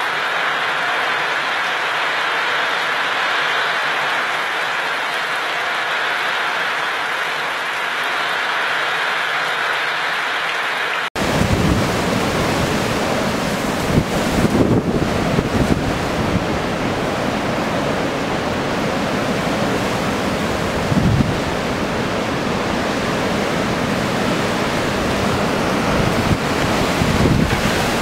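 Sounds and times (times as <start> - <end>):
heavy surf: 0.0 - 28.0
storm wind: 11.2 - 28.0
wind buffeting microphone: 11.2 - 28.0.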